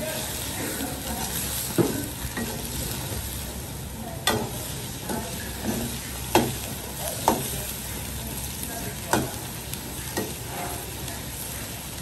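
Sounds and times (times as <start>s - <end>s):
crab sizzling in a wok: 0.0s - 12.0s
spatula knocking against wok: 5.1s - 7.5s, 9.1s - 9.4s.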